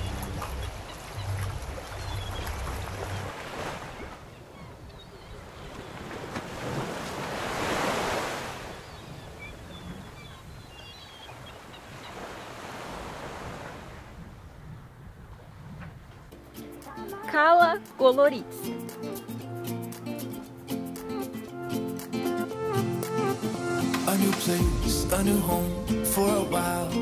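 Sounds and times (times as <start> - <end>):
sea waves washing: 0.0 - 4.7, 5.3 - 10.5, 11.3 - 14.6, 16.3 - 27.0
wind on microphone: 13.0 - 16.3.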